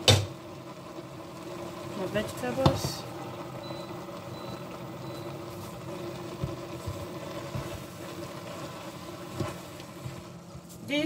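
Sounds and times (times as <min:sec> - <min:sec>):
steady mechanical hum: 0:00.0 - 0:11.0
spoon stirring in a metal pot: 0:06.3 - 0:10.8.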